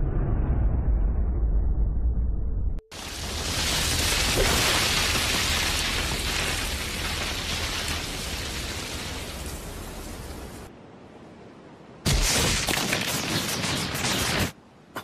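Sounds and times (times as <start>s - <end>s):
deep rumble of energy blast: 0.0s - 2.8s
hiss of rushing wind: 2.9s - 14.9s.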